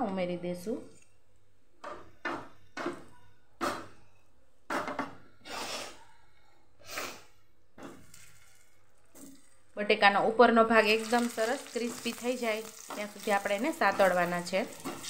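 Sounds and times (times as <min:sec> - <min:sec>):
potatoes knocking in a pan: 0:01.8 - 0:04.0, 0:10.8 - 0:15.0.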